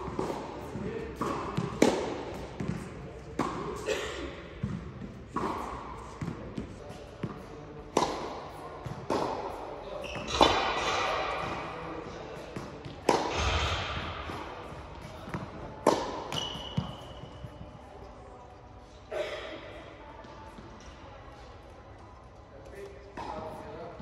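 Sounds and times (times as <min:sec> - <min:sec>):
tennis balls bouncing on court: 0:00.0 - 0:03.8, 0:04.6 - 0:11.7, 0:12.3 - 0:17.8
tennis balls struck by rackets: 0:00.0 - 0:03.8, 0:04.5 - 0:17.7.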